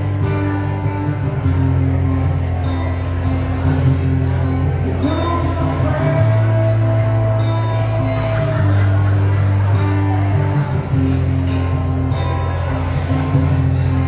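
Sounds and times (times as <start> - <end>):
acoustic guitar: 0.0 - 14.0
man singing: 4.8 - 11.0.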